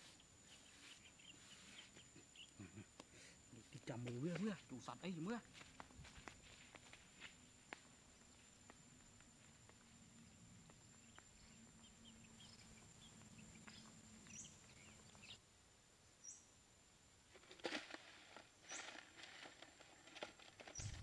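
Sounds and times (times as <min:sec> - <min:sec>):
bird chirps: 0:00.0 - 0:02.9, 0:11.0 - 0:15.4.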